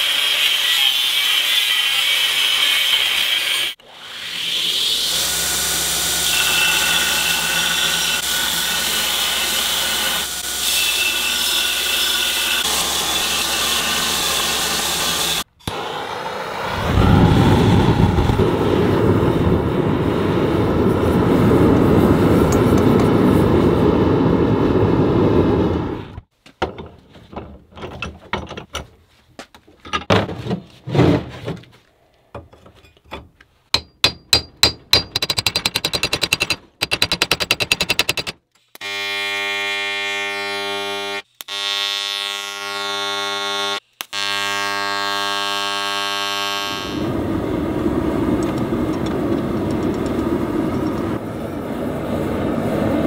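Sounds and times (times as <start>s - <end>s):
gas forge burner rushing: 47.0s - 53.0s.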